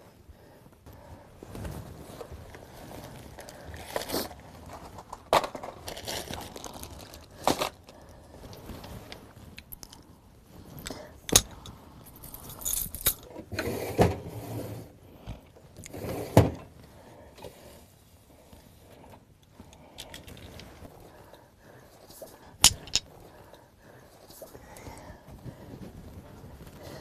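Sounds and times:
soft rustling: 0.0 - 5.2, 6.0 - 13.0, 14.4 - 27.0
jewellery jangling and clacking: 10.8 - 13.3, 22.6 - 23.1.

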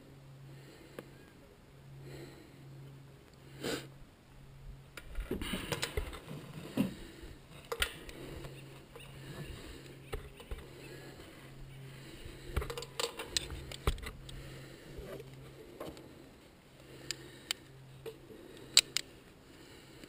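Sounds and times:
person sniffing and breathing: 3.5 - 4.0
metal carabiner clicks: 18.6 - 19.1.

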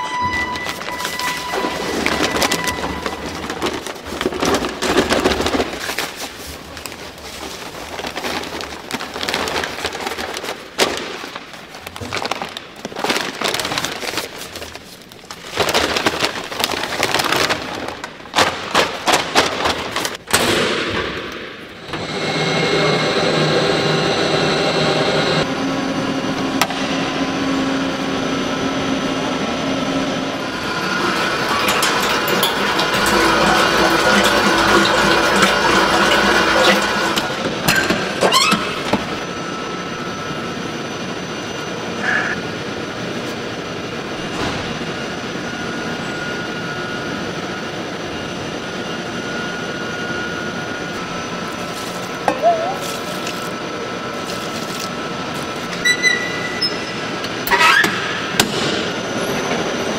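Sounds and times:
paper sacks rustling: 0.4 - 20.2, 30.6 - 39.2, 51.0 - 56.4
dough mixer humming: 21.8 - 40.4.

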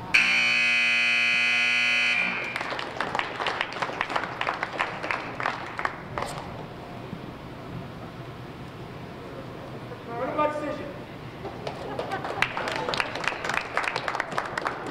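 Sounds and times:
scoreboard buzzer: 0.0 - 2.6
small crowd clapping: 2.2 - 6.6, 11.4 - 14.9.

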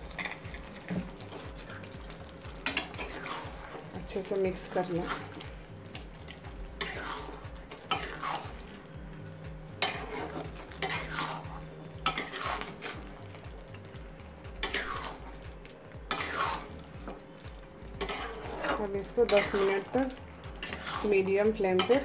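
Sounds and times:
metal spatula scraping a pan: 2.6 - 3.8, 4.6 - 5.6, 6.8 - 8.7, 9.8 - 13.1, 14.6 - 15.4, 16.1 - 16.8, 18.0 - 22.0.

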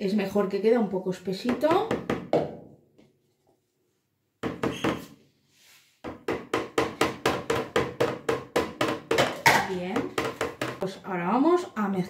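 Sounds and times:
spatula knocking on plastic bucket: 1.4 - 2.7, 6.0 - 10.8.

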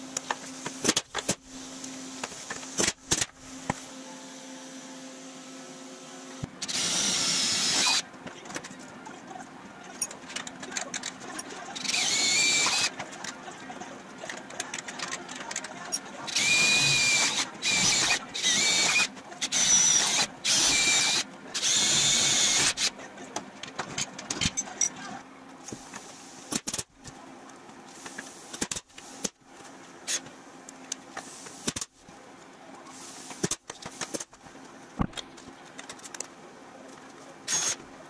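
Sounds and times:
power tool whining: 16.3 - 22.9.

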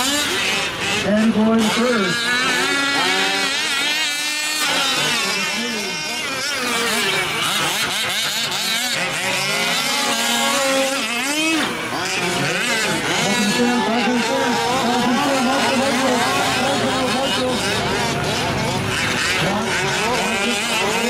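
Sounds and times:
small two-stroke engines revving: 0.0 - 21.0.

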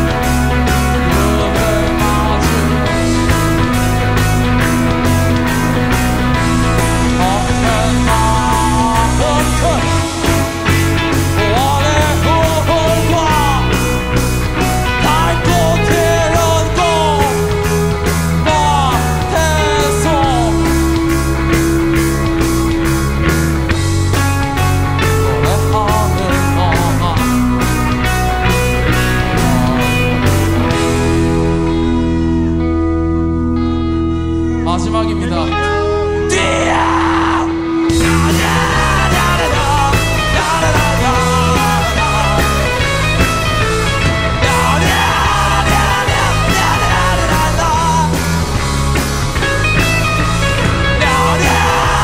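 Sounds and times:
lead vocals yelled: 0.0 - 3.8, 6.2 - 22.4, 28.4 - 31.7, 35.0 - 52.0
guitar pitch glides: 0.0 - 52.0
rock band playing live: 0.0 - 52.0
held guitar note: 28.2 - 32.8.

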